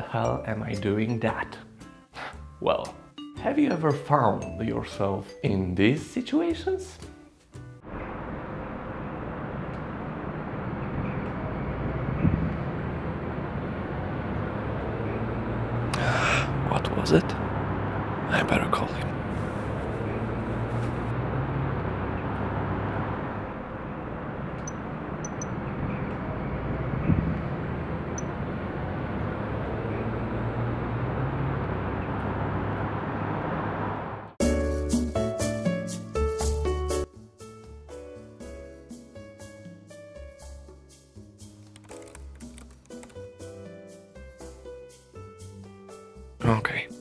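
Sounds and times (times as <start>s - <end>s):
distant traffic hum: 7.8s - 34.4s.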